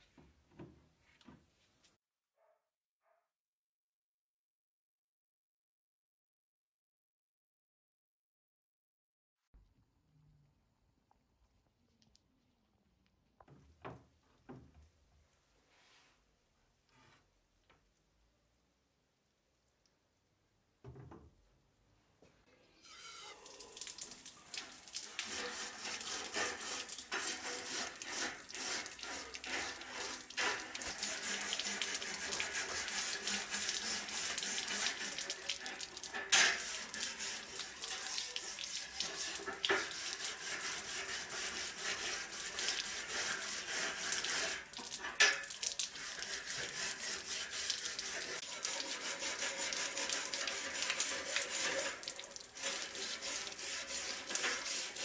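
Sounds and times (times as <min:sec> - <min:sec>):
running water splashing: 0:23.3 - 0:55.0
wire brush scrubbing metal: 0:25.0 - 0:55.0.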